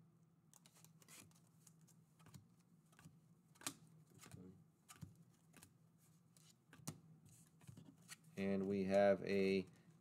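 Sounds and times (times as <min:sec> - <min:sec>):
trading cards flipping: 0:00.5 - 0:05.7.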